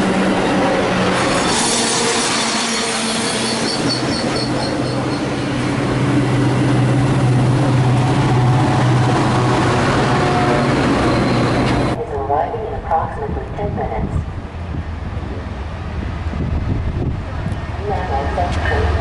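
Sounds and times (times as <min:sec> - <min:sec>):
train rolling noise: 0:00.0 - 0:19.0
train wheels squealing: 0:01.3 - 0:05.5, 0:10.8 - 0:12.0.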